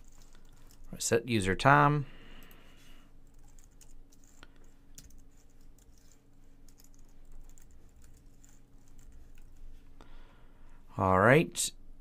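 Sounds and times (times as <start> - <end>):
keyboard typing: 0.0 - 1.0, 3.2 - 9.6
faint low hum: 0.0 - 12.0.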